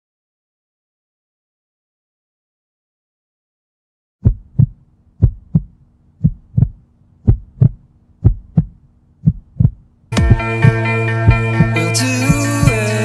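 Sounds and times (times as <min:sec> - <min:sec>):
heartbeat double thumps: 0:04.2 - 0:12.8
music with sustained chord: 0:10.1 - 0:13.0.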